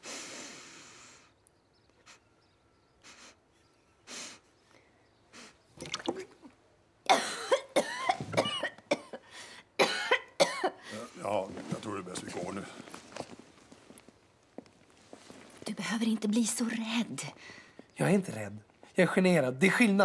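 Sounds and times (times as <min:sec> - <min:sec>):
person coughing: 0:07.1 - 0:09.2, 0:09.8 - 0:10.8.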